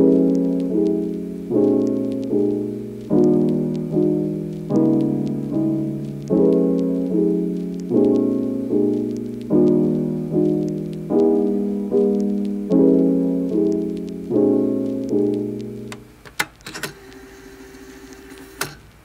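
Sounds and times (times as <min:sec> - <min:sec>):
soft piano chords: 0:00.0 - 0:16.2
sharp clicks: 0:00.2 - 0:12.7, 0:14.9 - 0:17.2.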